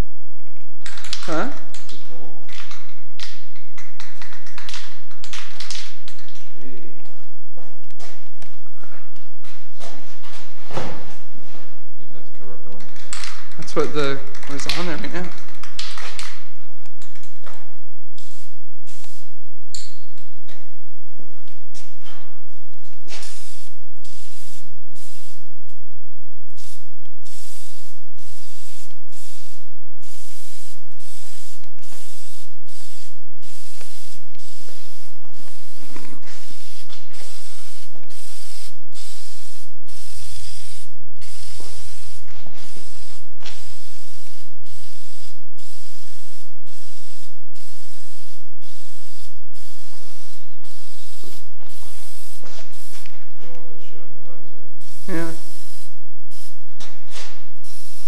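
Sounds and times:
spray can hissing: 13.0 - 20.0, 22.8 - 25.8, 26.5 - 53.2, 54.8 - 58.0.

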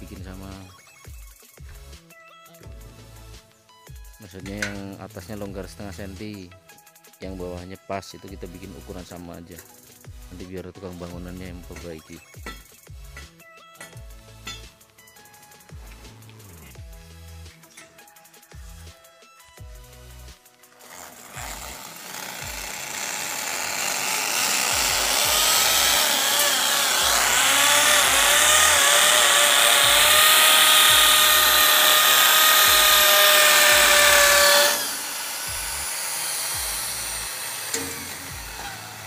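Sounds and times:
background music with a beat: 0.0 - 21.8, 35.5 - 39.0
electric drill boring into masonry: 19.7 - 39.0.

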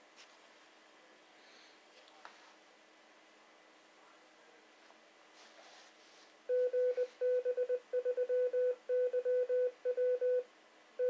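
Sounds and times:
morse code tone: 6.5 - 10.4.

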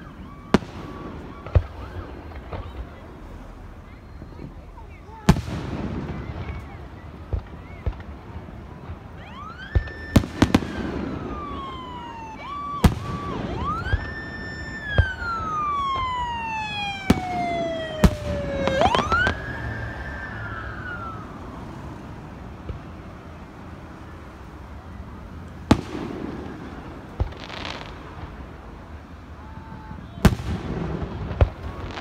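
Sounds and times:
siren wailing: 0.0 - 3.2, 9.1 - 22.2.

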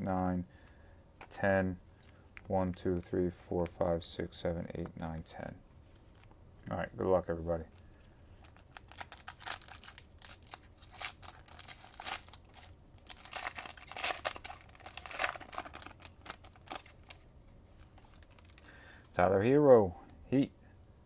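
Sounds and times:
foil wrapper tearing and crinkling: 8.4 - 17.2, 17.9 - 18.7.

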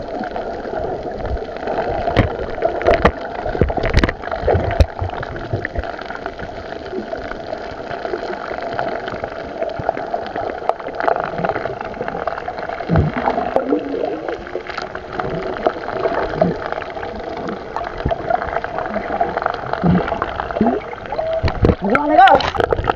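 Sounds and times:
underwater gurgling: 0.0 - 22.9.

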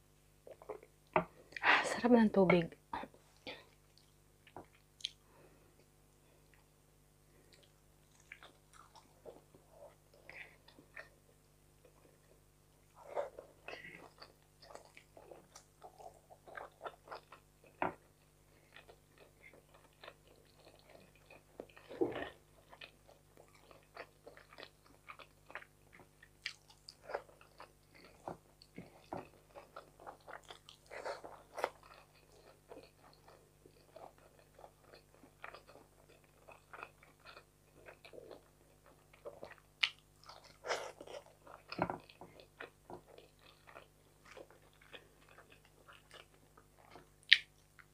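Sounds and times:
person chewing food: 0.4 - 1.6, 3.4 - 47.9.

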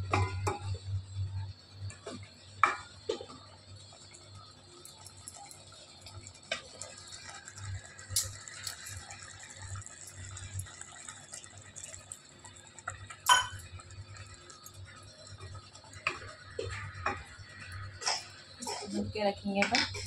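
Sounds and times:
water pouring into a pot: 2.6 - 19.0
tumbler and spoon clinking on pot: 13.2 - 13.7.

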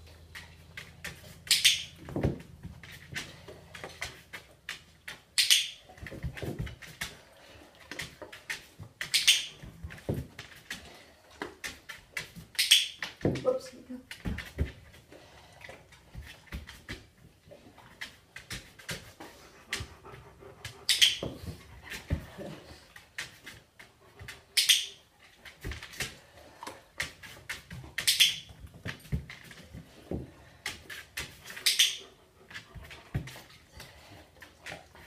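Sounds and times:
dog nails clicking on tile: 0.3 - 2.0, 3.1 - 6.1, 7.9 - 9.7, 11.4 - 13.2, 24.2 - 25.0, 25.8 - 29.6, 30.6 - 32.7.

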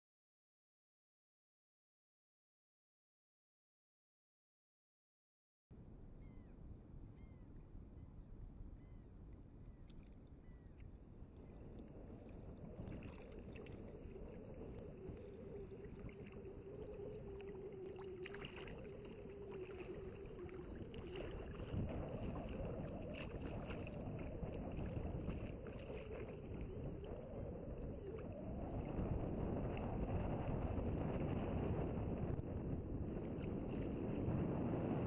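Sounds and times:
faint wavering hum: 5.8 - 35.0
water sloshing around wader: 8.8 - 34.4
wind buffeting microphone: 9.7 - 35.0.

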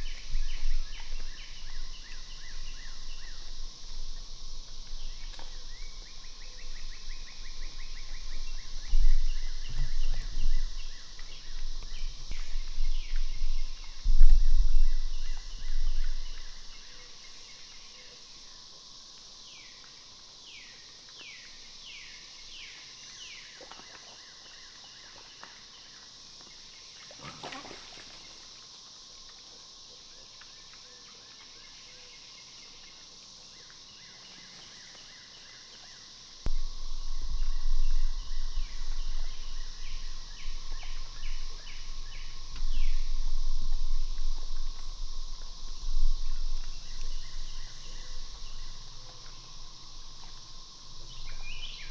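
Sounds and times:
high insect drone: 0.0 - 51.9
low rumbling: 36.5 - 51.6.

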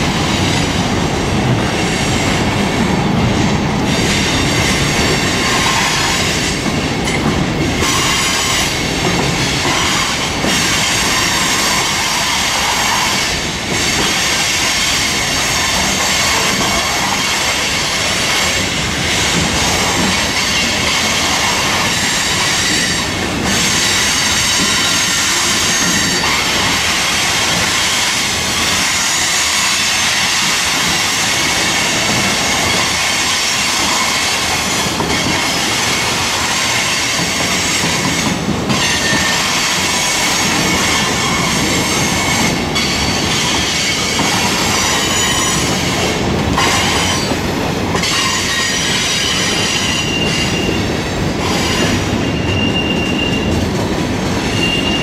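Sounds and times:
steel wheels squealing: 19.8 - 31.2, 31.9 - 53.7, 54.4 - 55.0.

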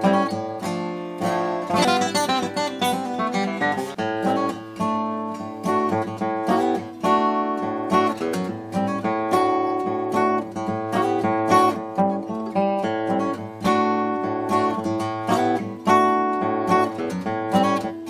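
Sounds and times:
acoustic guitar picking: 0.0 - 18.0.

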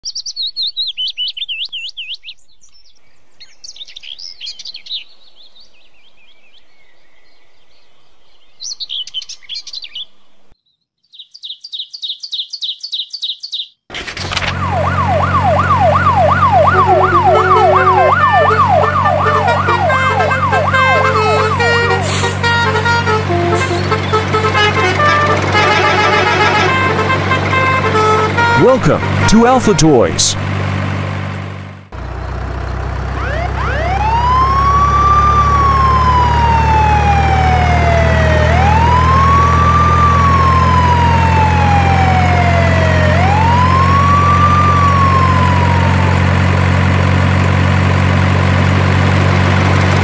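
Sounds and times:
birds chirping: 0.0 - 13.8, 15.1 - 25.9
low engine hum: 14.2 - 50.0
siren wailing: 14.5 - 30.1, 33.1 - 46.6
background music: 16.2 - 22.0.

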